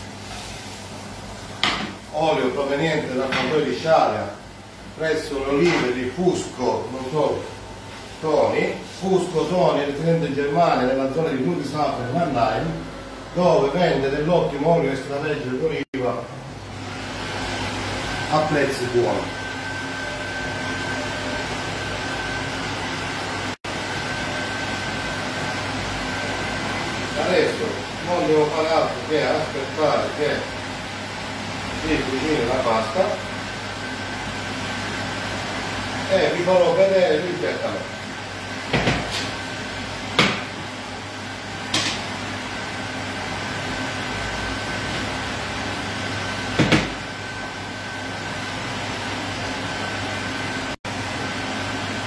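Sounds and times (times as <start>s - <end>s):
fan-like hum and hiss: 0.0s - 52.0s
high whine: 17.1s - 30.5s.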